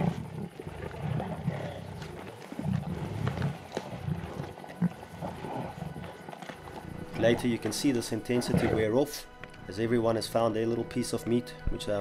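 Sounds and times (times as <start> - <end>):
lions growling: 0.0 - 9.2.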